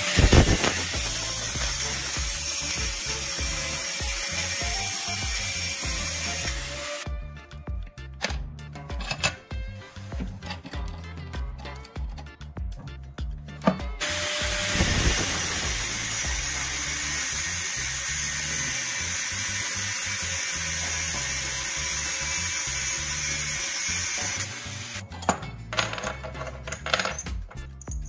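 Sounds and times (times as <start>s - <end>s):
angle grinder cutting steel: 0.0s - 7.1s, 14.0s - 25.0s.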